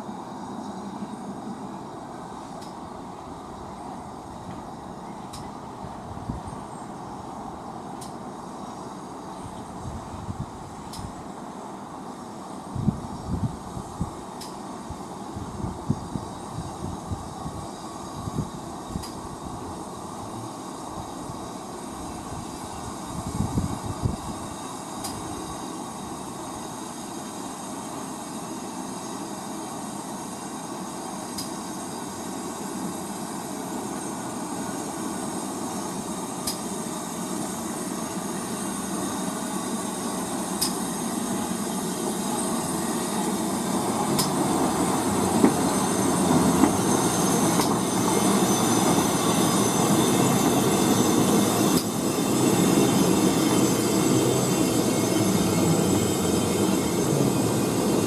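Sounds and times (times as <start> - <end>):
train rumbling on track: 0.0 - 58.0.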